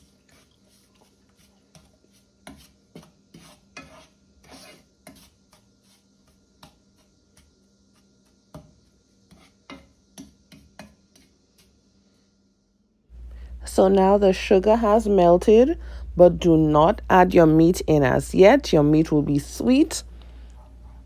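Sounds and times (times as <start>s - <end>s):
wooden spoon scraping pot: 0.0s - 11.8s.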